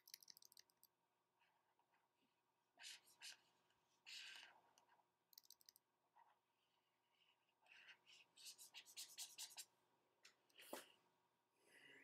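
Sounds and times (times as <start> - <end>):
stylus scratching on tablet: 7.7 - 9.8.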